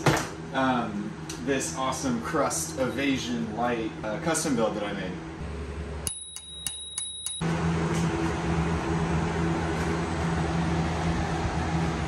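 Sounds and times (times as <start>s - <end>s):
steady low hum: 0.0s - 12.0s
bicycle bell ringing: 6.0s - 7.5s.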